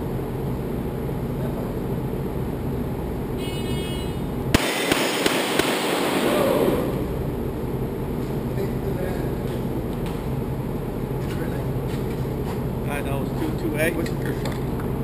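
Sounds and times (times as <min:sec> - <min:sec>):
steady background hum: 0:00.0 - 0:15.0
handgun shots echoing: 0:04.6 - 0:06.6.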